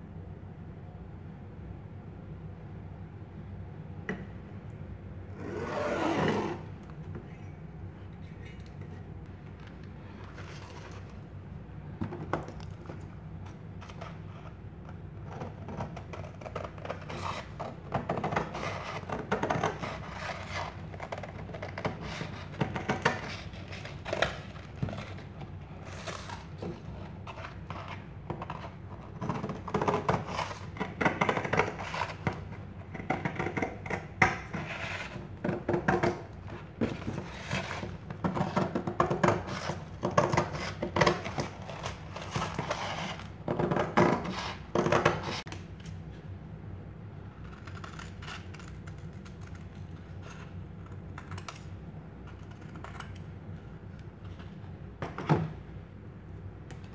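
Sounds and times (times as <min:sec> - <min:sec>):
steady low hum: 0:00.0 - 0:56.9.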